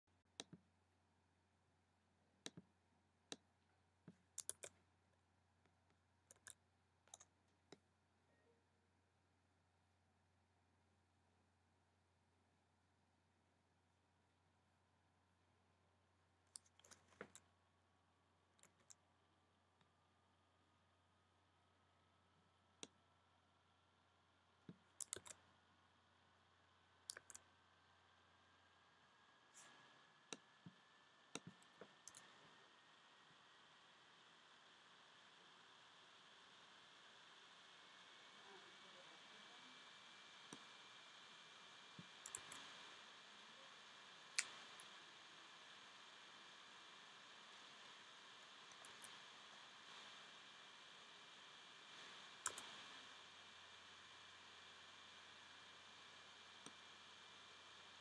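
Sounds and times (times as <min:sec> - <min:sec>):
faint low hum: 0:00.1 - 0:58.0
mouse and keyboard clicks: 0:04.1 - 0:04.8, 0:06.3 - 0:07.8, 0:16.5 - 0:17.5, 0:24.7 - 0:25.4, 0:27.1 - 0:27.4, 0:29.6 - 0:32.4, 0:42.0 - 0:42.7, 0:52.4 - 0:52.8.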